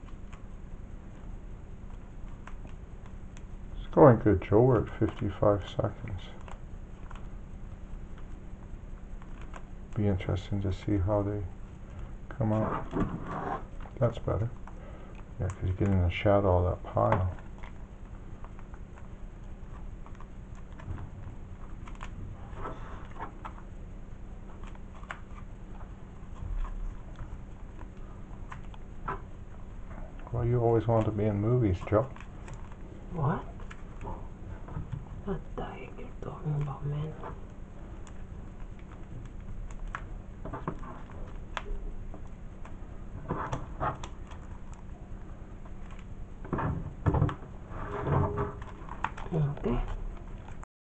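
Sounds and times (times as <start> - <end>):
low hum: 0.0 - 50.6
comic book knocking and rustling: 12.6 - 13.6.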